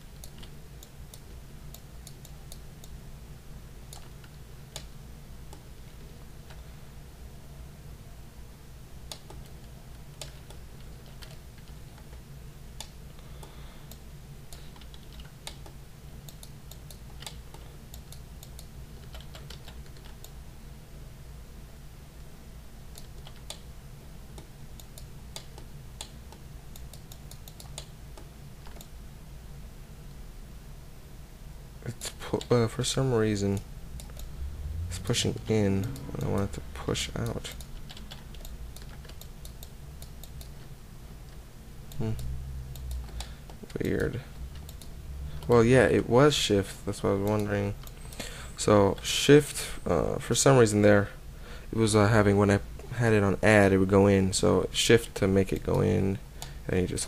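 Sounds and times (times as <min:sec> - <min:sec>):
steady low hum: 0:00.0 - 0:57.0
keyboard and mouse clicking: 0:03.9 - 0:04.9, 0:09.1 - 0:12.2, 0:12.8 - 0:20.4, 0:22.9 - 0:23.6, 0:24.4 - 0:28.9, 0:34.0 - 0:34.3, 0:37.1 - 0:40.6, 0:41.3 - 0:45.6
mouse and keyboard clicking: 0:12.8 - 0:20.3.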